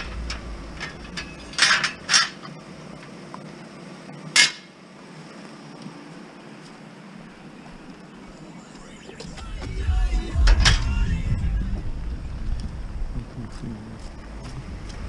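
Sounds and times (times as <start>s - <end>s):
metal bed rails clanking: 0.0s - 2.5s.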